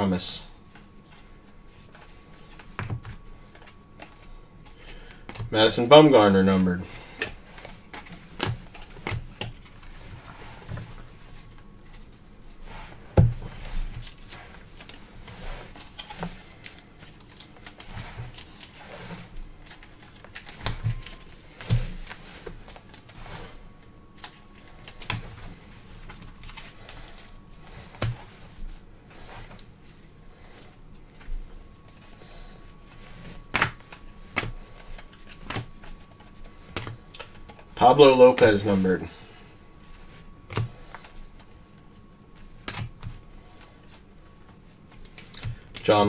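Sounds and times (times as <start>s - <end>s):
cards clicking and tapping: 33.5s - 37.7s, 42.6s - 43.2s.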